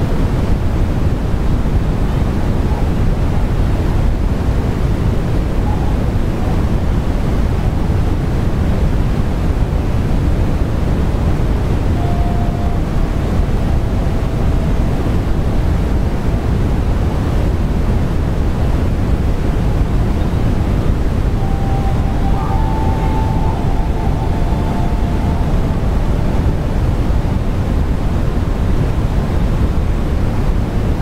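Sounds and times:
faint brief tone: 11.9 - 16.5, 21.3 - 28.2.

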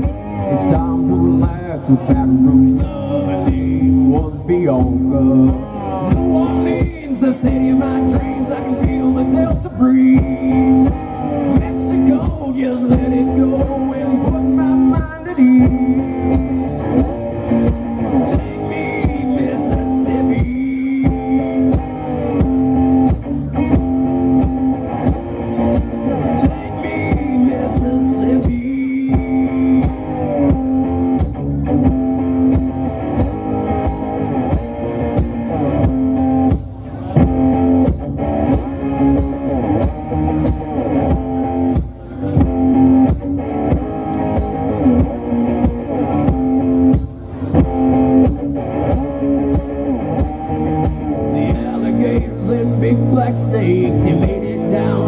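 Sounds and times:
man singing: 0.0 - 17.1, 18.0 - 22.8, 26.0 - 31.1, 51.1 - 55.0
electric guitar through amplifier: 0.0 - 55.0
steady beat: 0.0 - 55.0.

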